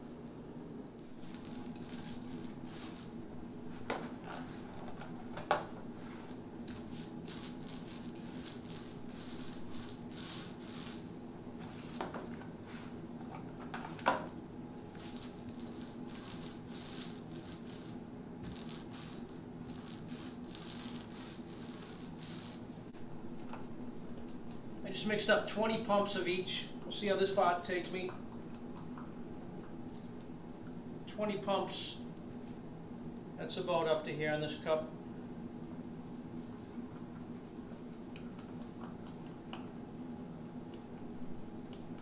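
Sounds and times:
steady low hum: 0:00.0 - 0:42.0
paint roller swishing: 0:01.2 - 0:03.1, 0:06.0 - 0:11.1, 0:15.0 - 0:22.7.

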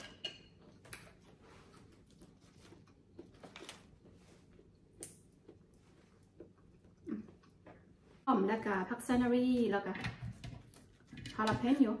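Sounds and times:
soft chewing: 0:00.6 - 0:08.3.

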